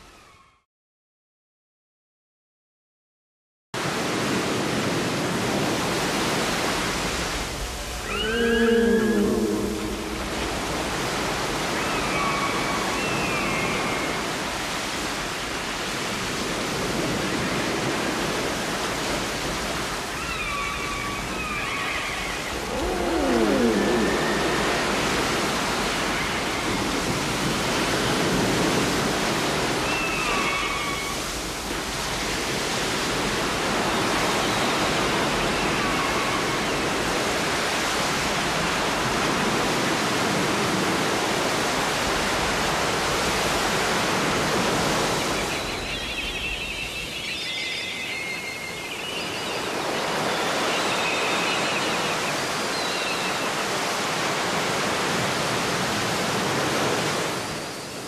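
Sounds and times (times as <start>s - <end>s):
steady rushing noise: 9.0s - 11.8s.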